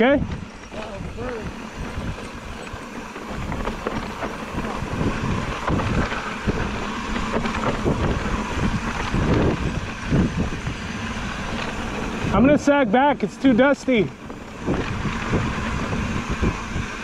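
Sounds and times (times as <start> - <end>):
bike knocks and rattles: 0.0 - 12.6
wind on microphone: 0.0 - 12.6, 14.0 - 17.0
tyres rumbling on dirt: 0.0 - 17.0.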